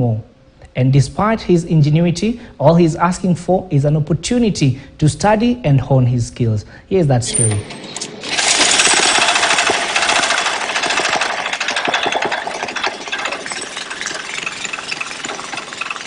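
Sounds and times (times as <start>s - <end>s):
small petrol engine running: 8.2s - 16.0s.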